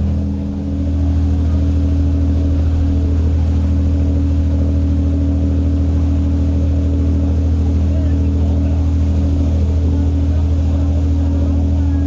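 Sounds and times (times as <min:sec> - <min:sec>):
ferry engine droning: 0:00.0 - 0:12.0.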